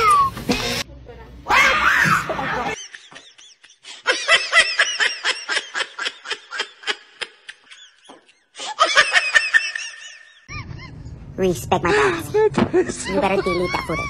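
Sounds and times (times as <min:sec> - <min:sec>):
high-pitched laughter: 0:12.8 - 0:14.0.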